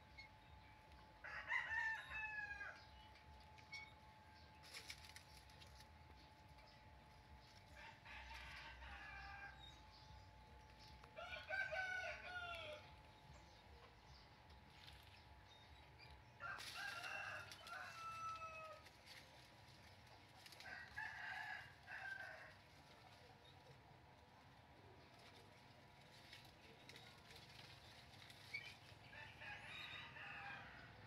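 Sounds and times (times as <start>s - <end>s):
rooster crowing: 1.2s - 2.9s, 11.2s - 12.8s, 16.4s - 18.8s, 29.1s - 30.9s.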